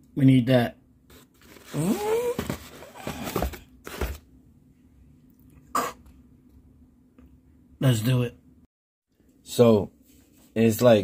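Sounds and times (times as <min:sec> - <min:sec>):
handling scuffs and rustles: 0:01.1 - 0:04.2.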